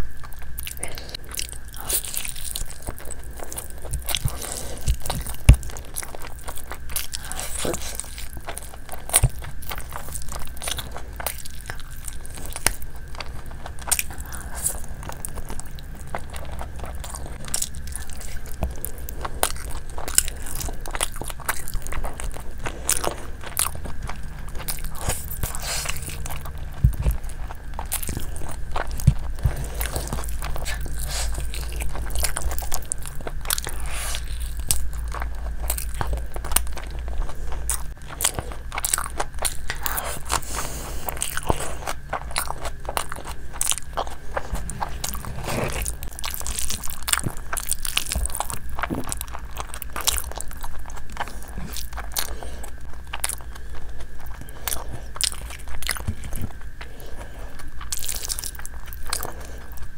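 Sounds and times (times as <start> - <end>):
low steady hum: 0.0 - 59.9
person chewing with mouth clicks: 0.0 - 59.9.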